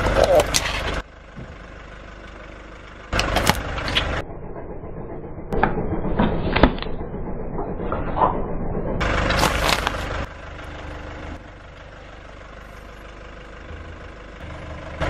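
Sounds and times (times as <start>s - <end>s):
car engine running: 0.0s - 15.0s
plastic bottles crunching under tyre: 9.0s - 10.3s.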